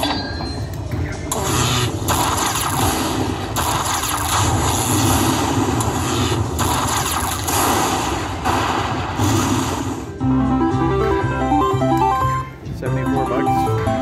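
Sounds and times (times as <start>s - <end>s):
slot machine win sound: 10.2s - 14.0s.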